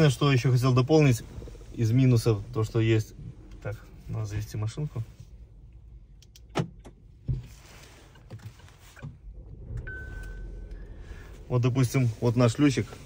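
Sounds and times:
car engine starting and idling: 0:00.0 - 0:13.0
steady beep: 0:09.8 - 0:11.0.

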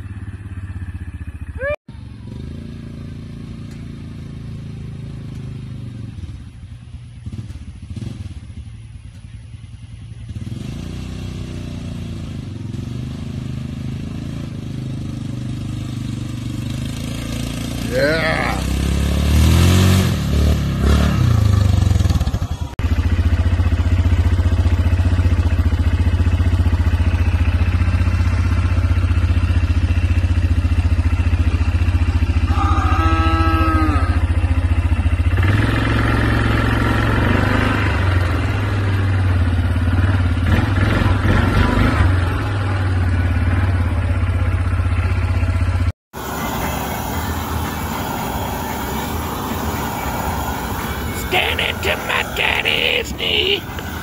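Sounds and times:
atv engine revving: 0:00.0 - 0:54.0
short pitched call: 0:49.8 - 0:54.0.

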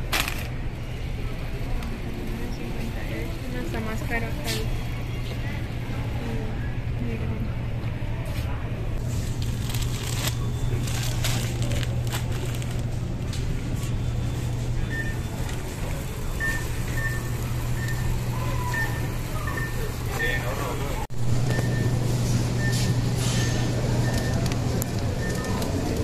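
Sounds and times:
basket clicking and rattling: 0:00.0 - 0:00.6
shopping cart rolling: 0:09.0 - 0:26.0.

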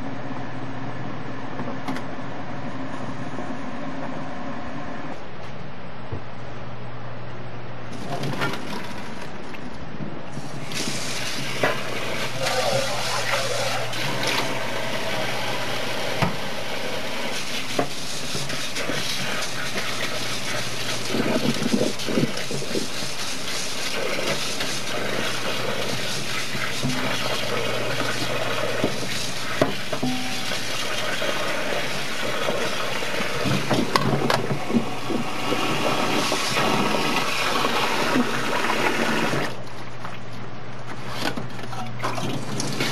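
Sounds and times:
kitchen tap running: 0:10.3 - 0:39.6, 0:42.0 - 0:42.9
hands rinsing noodles: 0:10.4 - 0:15.5, 0:17.2 - 0:40.3
water poured into metal colander: 0:17.3 - 0:33.9
metal colander knocks: 0:30.0 - 0:30.5.

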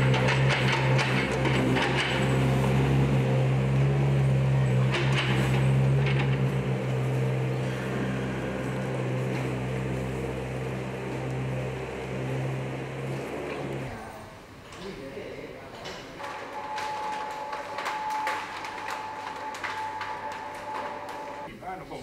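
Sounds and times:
machine humming: 0:00.0 - 0:14.6, 0:16.2 - 0:21.5.

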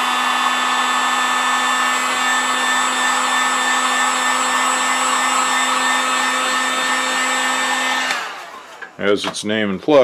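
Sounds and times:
heat gun blowing air: 0:00.0 - 0:09.0.

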